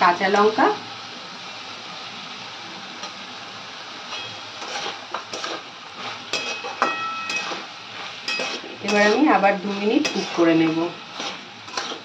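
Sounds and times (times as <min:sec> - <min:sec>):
food sizzling in a wok: 0:00.0 - 0:12.0
metal spatula scraping a wok: 0:04.0 - 0:12.0.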